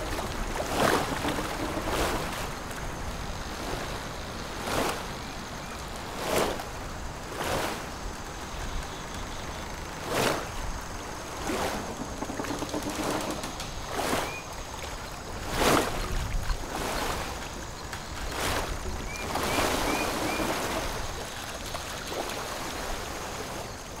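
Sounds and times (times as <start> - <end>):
water lapping at shoreline: 0.0 - 24.0.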